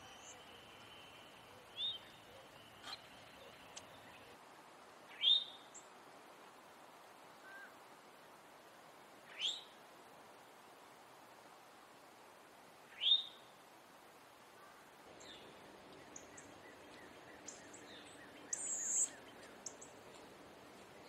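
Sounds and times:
bird alarm call: 0:15.2 - 0:20.0.

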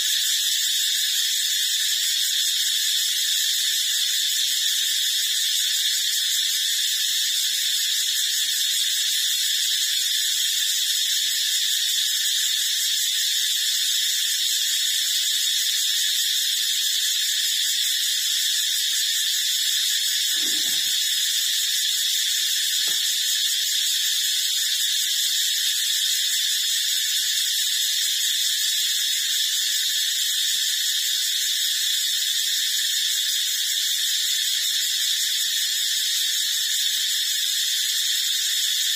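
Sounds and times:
steady high-pitched hiss: 0:00.0 - 0:38.9
small click: 0:22.8 - 0:23.1.

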